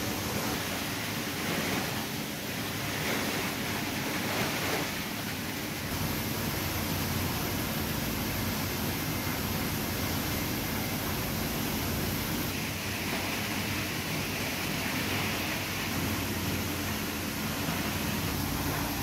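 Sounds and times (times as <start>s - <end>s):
water hissing: 0.0s - 19.0s
deep machinery rumble: 5.8s - 19.0s.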